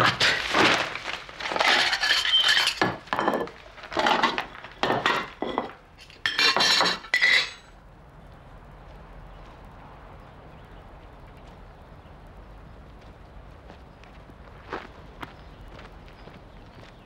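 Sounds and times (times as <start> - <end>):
cutlery and metal dishes clattering: 0.0 - 7.7.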